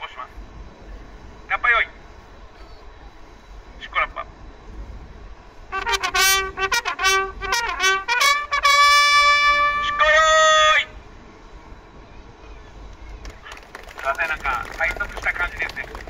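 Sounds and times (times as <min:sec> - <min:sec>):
bugles playing a bugle call: 0:05.7 - 0:11.0.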